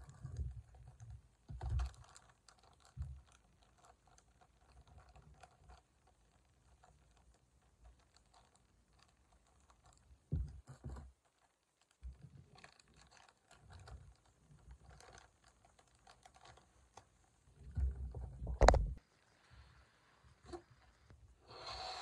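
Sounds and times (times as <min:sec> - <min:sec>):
plastic bag crinkling: 0:01.7 - 0:05.8, 0:10.8 - 0:17.0.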